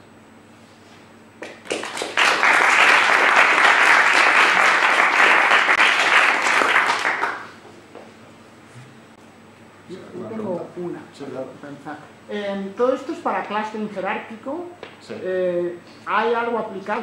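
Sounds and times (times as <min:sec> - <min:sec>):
audience applauding: 0:01.4 - 0:07.6.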